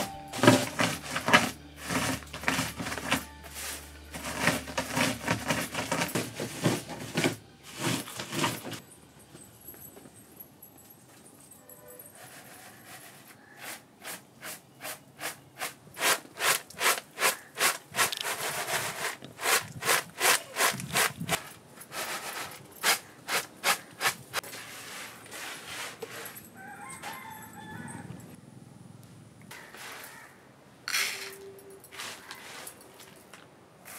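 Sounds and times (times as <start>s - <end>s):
rhythmic hand scraping: 0.0s - 8.8s, 12.1s - 26.4s.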